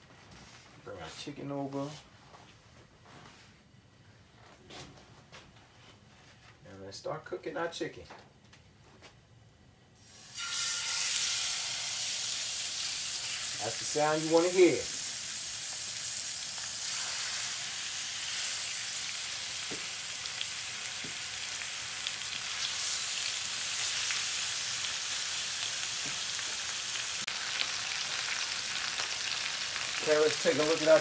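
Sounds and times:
meat sizzling in frying pan: 10.0 - 31.0.

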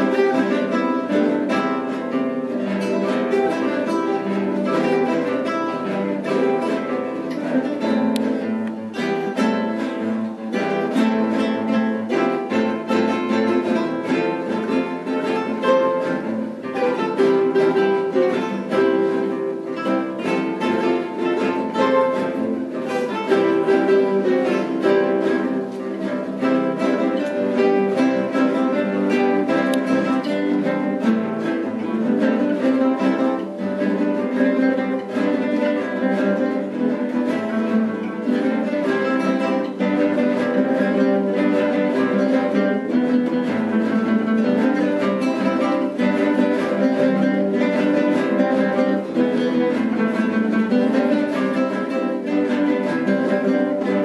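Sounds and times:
classical guitar ensemble playing: 0.0 - 54.0.

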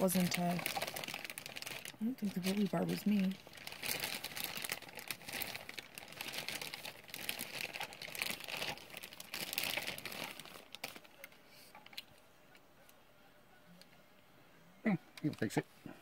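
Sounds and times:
packing wrap crinkling: 0.0 - 12.2.

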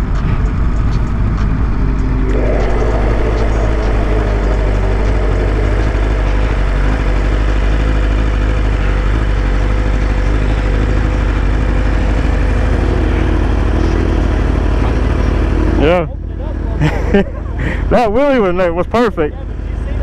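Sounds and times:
motorcycle engine running: 0.9 - 12.5.

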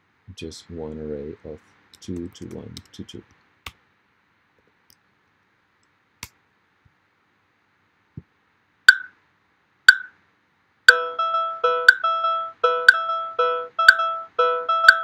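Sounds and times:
metronome clicks: 8.9 - 9.1, 9.9 - 10.1, 10.9 - 15.0
short electronic notes: 10.9 - 15.0.

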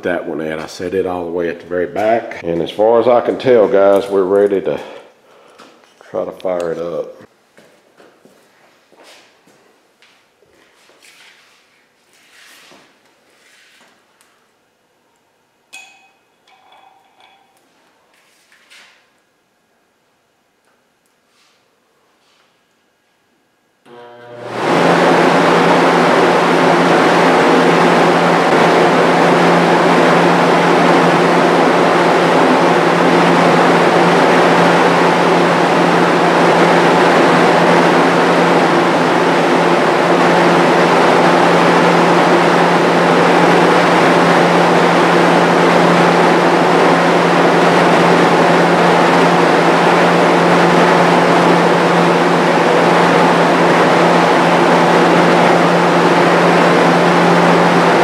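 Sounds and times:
exhaust fan air rush: 0.0 - 7.3, 23.9 - 58.0
electric motor hum: 23.8 - 58.0.

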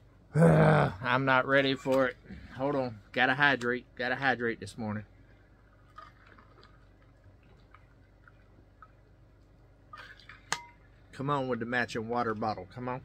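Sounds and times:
man drinking and swallowing: 5.6 - 9.1.

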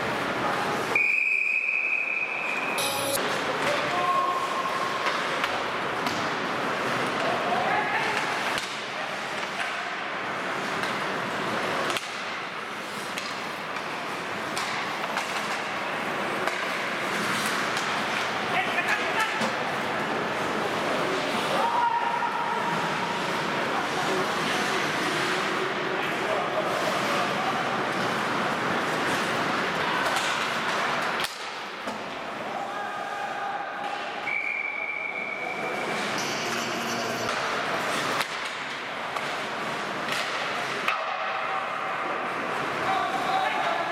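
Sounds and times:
voices and rink noise: 0.0 - 43.9
steady held tones: 2.8 - 3.2
hockey sticks and puck clacking: 3.2 - 21.6, 22.7 - 32.6, 33.8 - 34.7, 35.5 - 43.9.

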